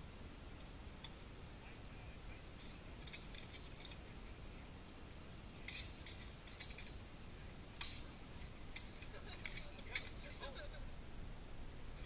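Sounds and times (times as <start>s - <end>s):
low background rumble: 0.0s - 12.0s
swords and armour clashing: 7.8s - 10.5s.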